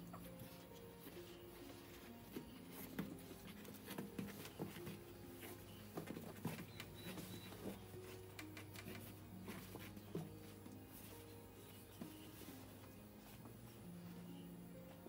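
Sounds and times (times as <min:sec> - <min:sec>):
soft background music: 0:00.0 - 0:15.0
light taps and scratches: 0:00.2 - 0:11.2.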